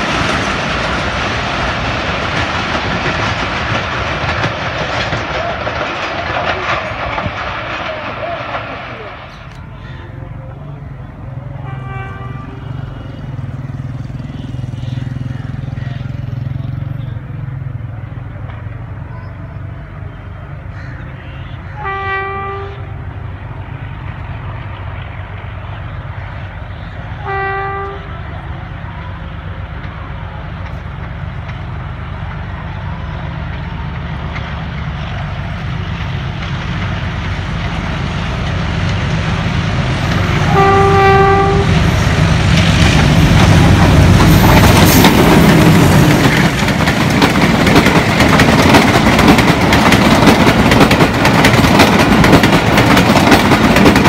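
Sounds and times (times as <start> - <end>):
diesel locomotive engine: 0.0 - 54.0
train wheels clattering on rails: 0.0 - 54.0
train horn blasts: 11.5 - 13.1, 21.2 - 23.0, 27.2 - 28.3, 40.2 - 42.0.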